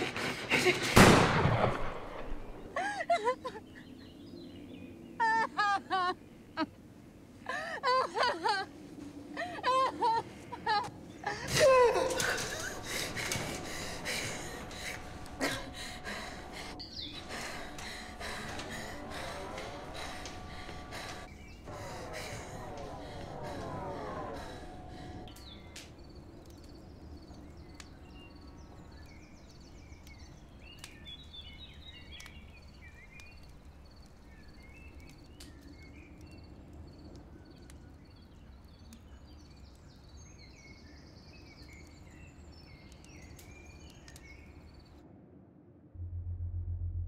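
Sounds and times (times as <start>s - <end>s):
birds chirping: 9.4s - 45.0s
low steady rumble: 11.6s - 26.3s, 45.9s - 47.0s
deep electronic music: 46.0s - 47.0s.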